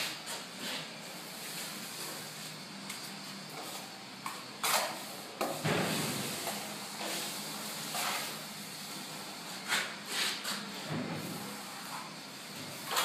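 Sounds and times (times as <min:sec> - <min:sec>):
trowel scraping over plaster: 0:04.6 - 0:05.2, 0:09.6 - 0:10.7.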